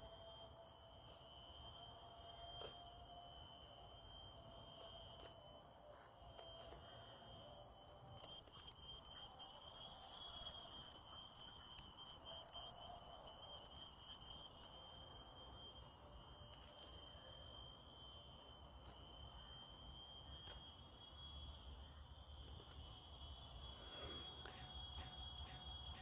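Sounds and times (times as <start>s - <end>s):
insect chorus trilling: 0.0s - 26.0s.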